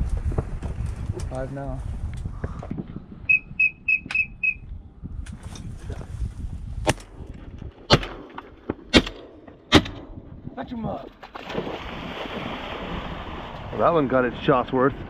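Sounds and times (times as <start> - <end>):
whistle toots: 3.2 - 4.7
shotgun shots: 7.9 - 10.2.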